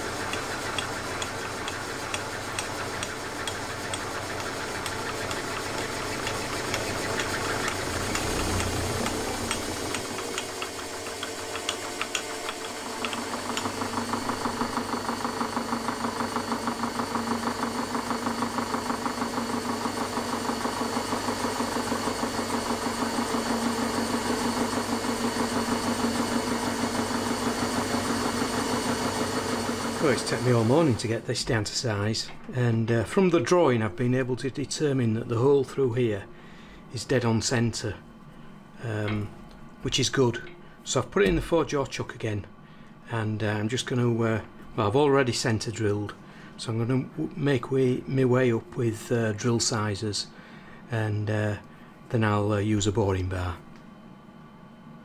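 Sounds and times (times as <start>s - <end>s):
milling machine cutting metal: 0.0s - 31.1s.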